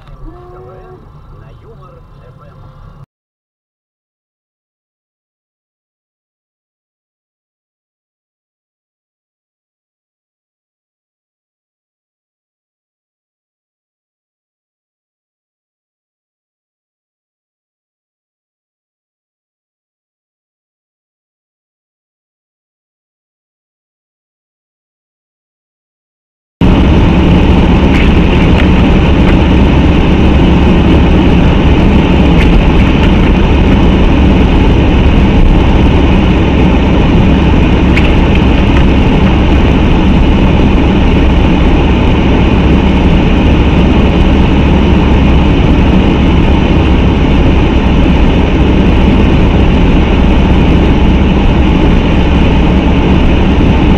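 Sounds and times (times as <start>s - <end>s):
car interior road rumble: 0.0s - 3.0s, 26.6s - 53.9s.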